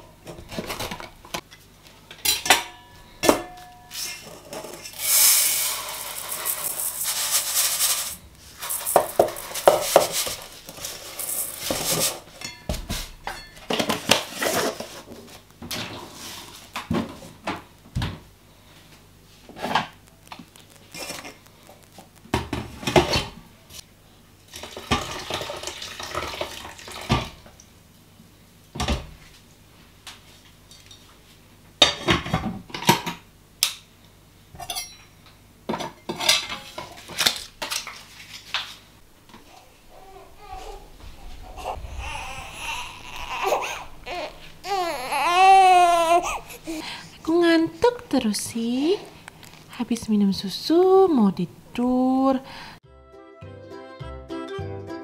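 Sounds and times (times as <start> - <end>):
pot and utensils clinking: 2.2 - 14.3, 34.6 - 37.9
rustling: 4.0 - 13.2, 37.0 - 47.9
grain poured into metal pot: 4.9 - 12.2.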